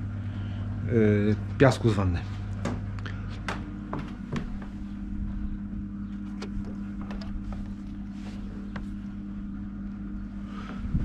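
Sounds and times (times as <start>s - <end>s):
pump motor humming: 4.0s - 11.0s.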